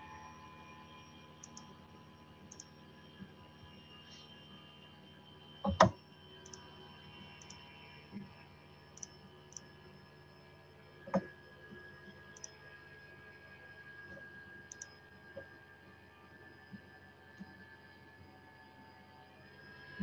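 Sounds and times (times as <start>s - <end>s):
light clicks: 5.7s - 6.6s, 14.7s - 15.0s.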